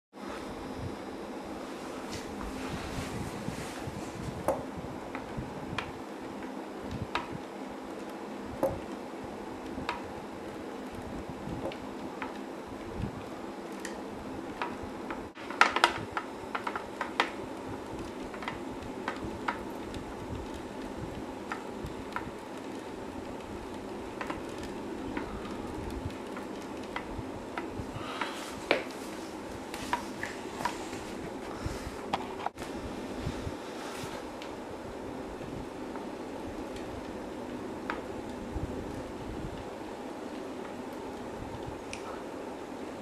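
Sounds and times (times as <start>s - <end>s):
steady low hum: 0.2s - 43.0s
light mechanical clicks and ticks: 9.6s - 28.8s.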